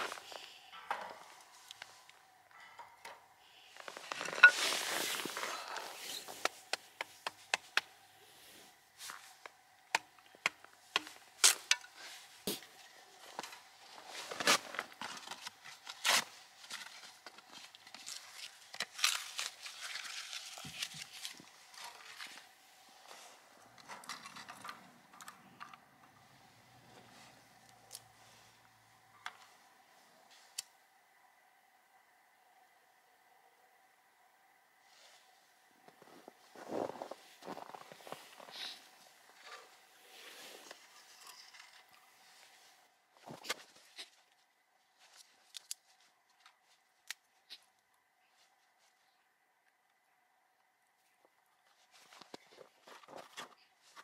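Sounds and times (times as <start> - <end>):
rustling: 3.6 - 9.6, 10.5 - 30.6.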